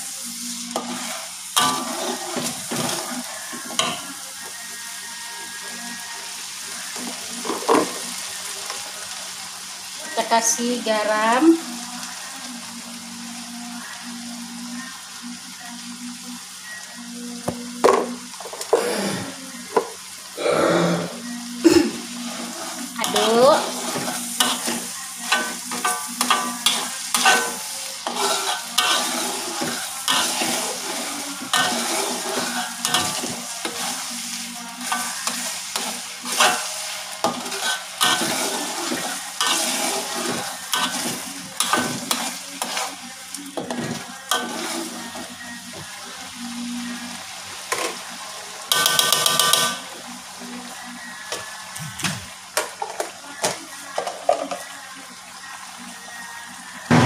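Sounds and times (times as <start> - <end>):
paste sizzling in oil: 0.0 - 56.9
spatula scraping a wok: 0.2 - 4.1, 22.0 - 43.0, 43.6 - 45.2.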